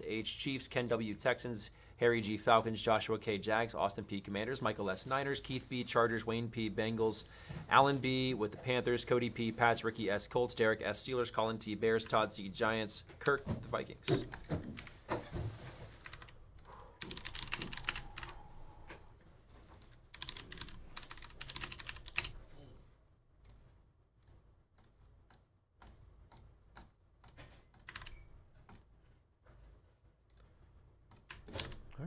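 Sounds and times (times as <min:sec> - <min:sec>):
computer keyboard typing: 0:16.0 - 0:18.4, 0:19.6 - 0:22.4, 0:24.8 - 0:28.8.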